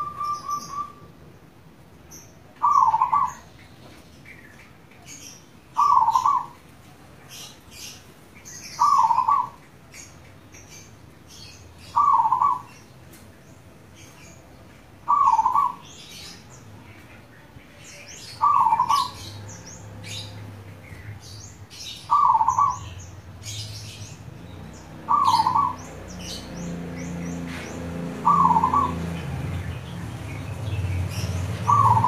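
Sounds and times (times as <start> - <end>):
small birds chirping: 0.0 - 32.0
dove cooing: 2.6 - 3.5, 5.8 - 6.6, 8.8 - 9.6, 11.9 - 12.7, 15.1 - 15.9, 18.4 - 19.3, 22.1 - 22.8, 25.0 - 25.8, 28.2 - 29.0, 31.6 - 32.0.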